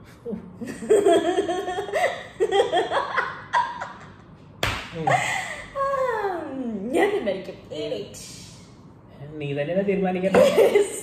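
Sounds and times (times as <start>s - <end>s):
woman laughing loudly: 0.6s - 4.2s.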